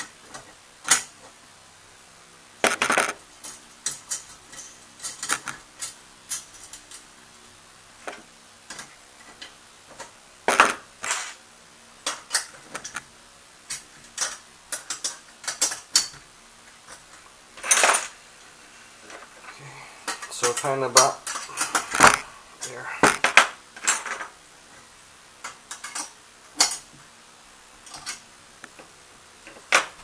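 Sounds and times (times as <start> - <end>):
metal plates clinking: 17.6 - 18.2.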